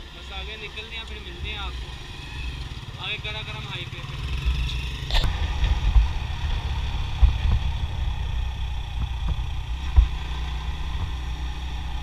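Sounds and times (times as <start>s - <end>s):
motorcycle engine rumbling: 0.0s - 12.0s
sharp low thumps: 5.1s - 11.4s.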